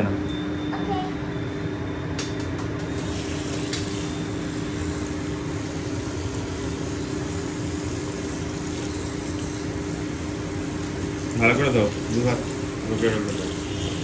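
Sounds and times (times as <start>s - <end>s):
steady hum: 0.0s - 14.0s
tap water running into basin: 5.4s - 13.8s.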